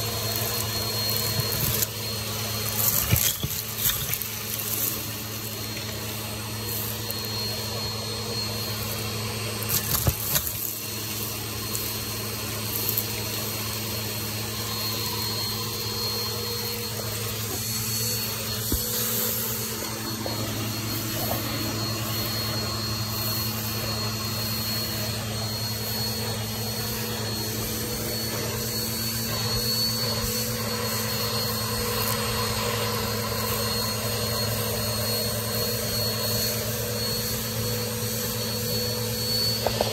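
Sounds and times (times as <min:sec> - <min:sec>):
debris clattering up hose: 0:00.0 - 0:07.2, 0:09.6 - 0:11.9
vacuum cleaner running: 0:00.0 - 0:39.9.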